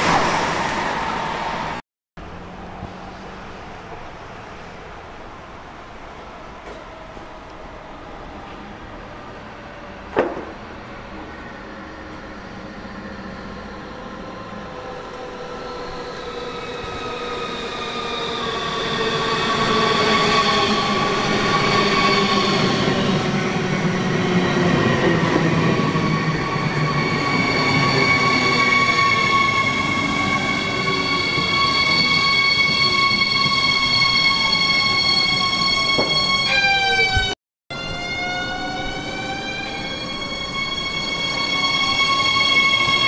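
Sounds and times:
electric train whine: 5.0s - 43.0s.

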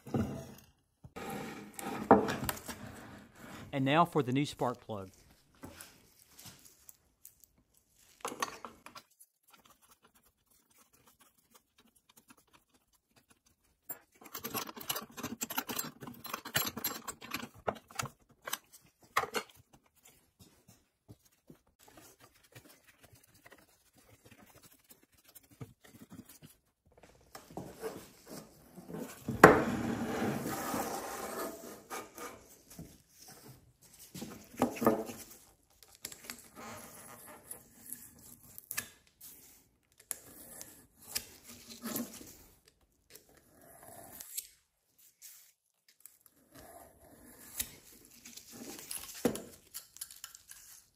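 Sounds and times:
tools clicking and scraping: 13.3s - 20.2s.

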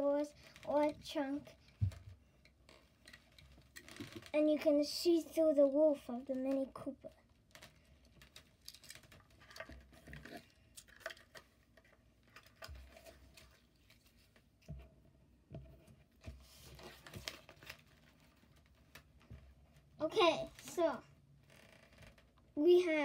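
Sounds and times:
toy car packaging handling: 7.6s - 14.1s.

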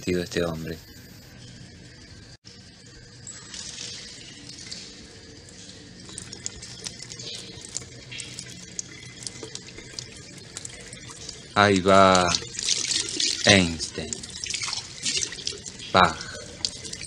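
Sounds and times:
water splashes and drips: 3.2s - 17.0s
tap water running into sink: 5.6s - 17.0s.

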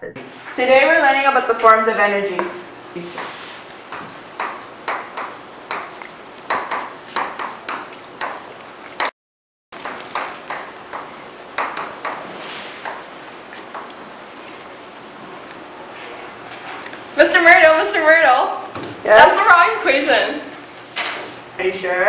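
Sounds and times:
chalk tapping on blackboard: 2.4s - 9.1s, 9.8s - 13.1s.

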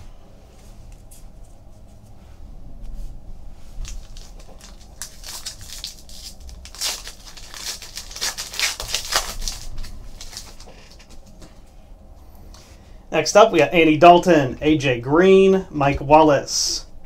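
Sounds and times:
foil wrapper tearing and crinkling: 3.8s - 11.2s.

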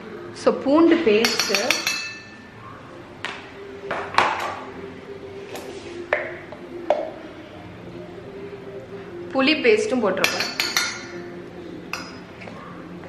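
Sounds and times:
metal spoon tapping utensils: 1.1s - 2.4s, 10.2s - 11.3s, 11.9s - 12.2s.

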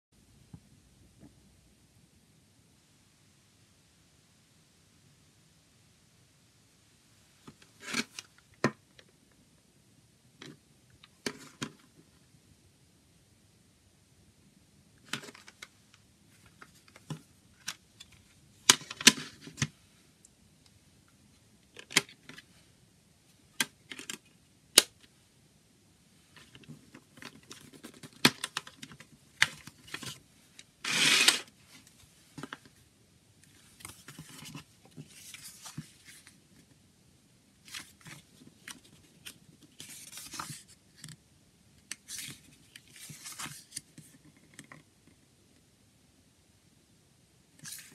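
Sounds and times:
booklet scraping rasp: 30.8s - 31.5s
paper rustling: 33.6s - 36.4s, 37.6s - 40.8s, 42.0s - 44.4s.

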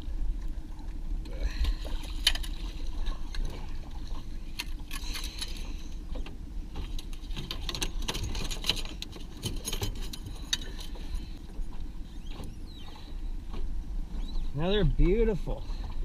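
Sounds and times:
boat engine rumble: 0.0s - 16.0s
fishing gear clicking and rattling: 1.6s - 11.3s.

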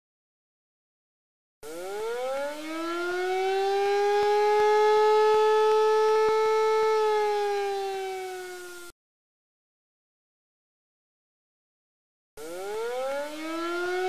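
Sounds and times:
air-raid siren wailing: 1.6s - 8.9s, 12.4s - 14.0s.

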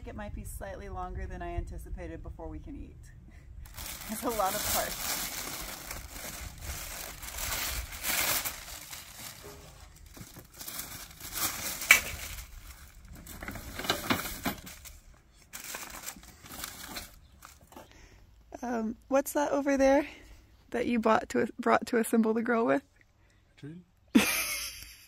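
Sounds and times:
packaging crinkling: 3.7s - 17.8s.

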